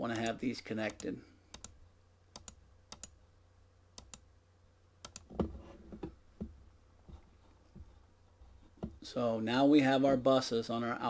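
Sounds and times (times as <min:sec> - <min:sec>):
computer mouse clicking: 0:00.1 - 0:03.2, 0:04.0 - 0:04.3, 0:05.0 - 0:05.3.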